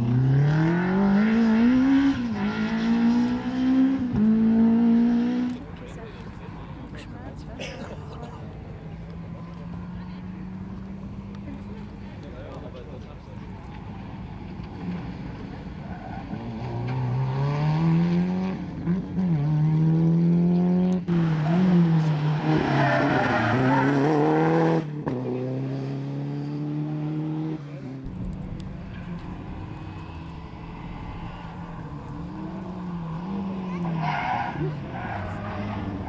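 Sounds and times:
rally car engine accelerating: 0.0s - 5.8s, 13.4s - 36.0s
car approaching: 0.0s - 36.0s
tyre squeal: 31.0s - 36.0s.

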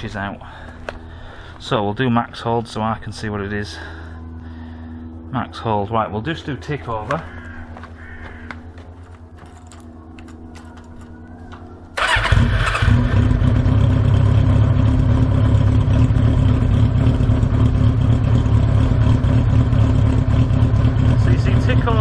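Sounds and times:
motorcycle engine starting and idling: 9.1s - 22.0s.

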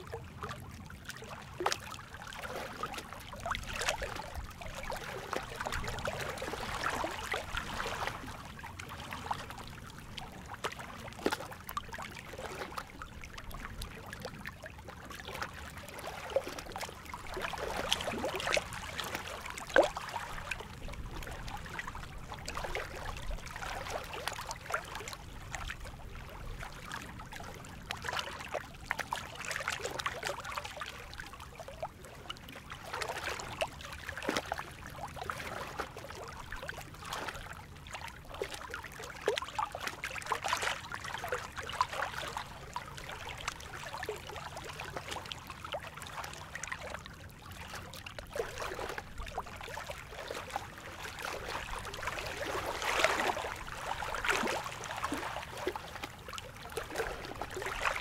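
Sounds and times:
small waves lapping on rocks: 0.0s - 58.0s.

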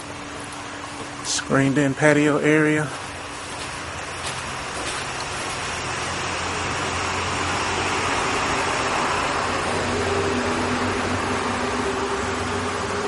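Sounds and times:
air-conditioning fan rush: 0.0s - 13.0s
steady mid-pitched tone: 5.8s - 13.0s.

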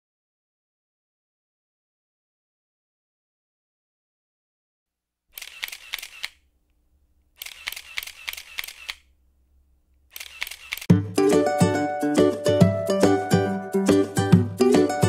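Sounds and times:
camera shutter clicking rapidly: 5.4s - 6.4s, 7.4s - 9.1s, 10.1s - 10.9s
plucked-string music: 10.9s - 15.0s.

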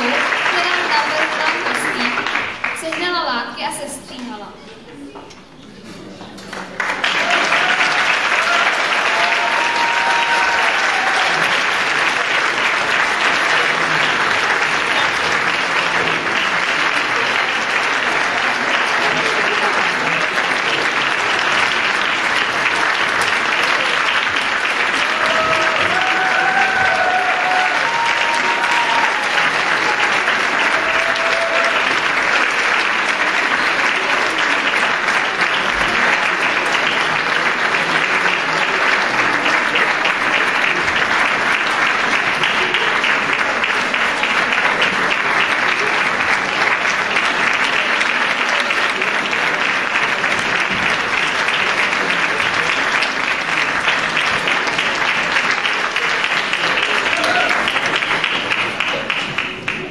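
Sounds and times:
audience applauding: 0.0s - 3.4s, 6.2s - 59.9s
crowd calling out: 7.2s - 11.7s, 24.8s - 32.0s, 57.1s - 57.8s.

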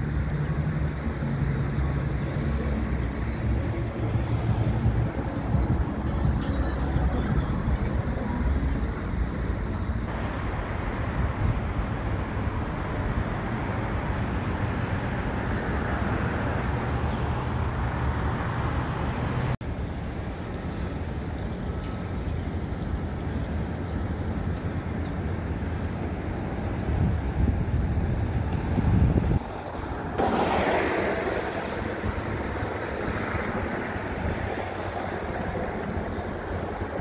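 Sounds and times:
freight train wheels rumbling on rail: 0.0s - 10.6s, 20.1s - 37.0s.

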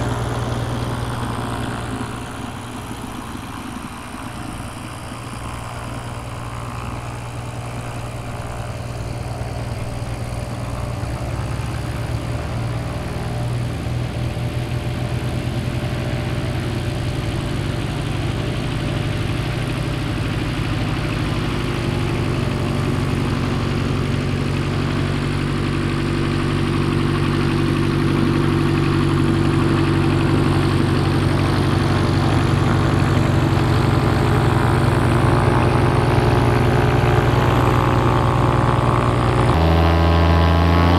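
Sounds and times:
propeller aircraft engine drone: 0.0s - 40.9s.

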